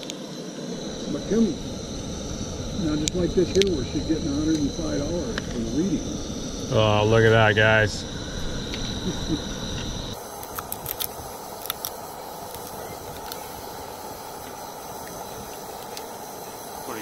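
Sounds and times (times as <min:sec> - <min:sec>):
low rumble: 0:00.0 - 0:16.8
camp stove hissing: 0:00.0 - 0:17.0
crab shell cracking clicks: 0:10.4 - 0:13.4.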